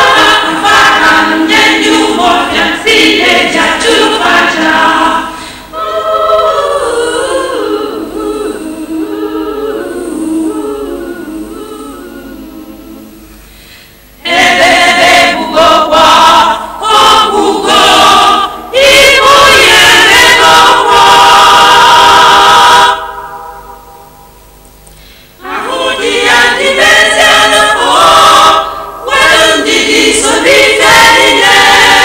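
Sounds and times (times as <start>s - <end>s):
loud group singing: 0.0s - 12.5s, 14.2s - 23.3s, 25.4s - 32.0s
choir singing unaccompanied: 0.0s - 13.3s, 14.2s - 23.9s, 25.4s - 32.0s.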